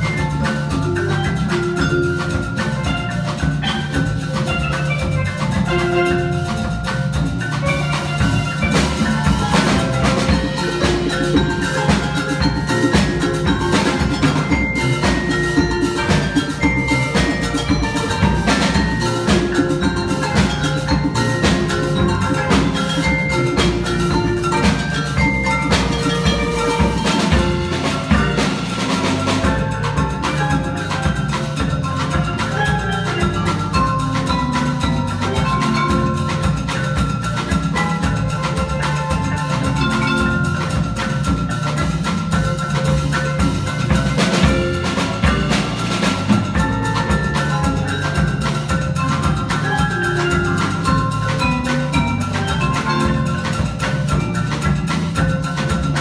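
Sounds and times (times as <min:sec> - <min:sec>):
drum kit: 0:00.0 - 0:56.0
marimbas playing: 0:00.0 - 0:56.0.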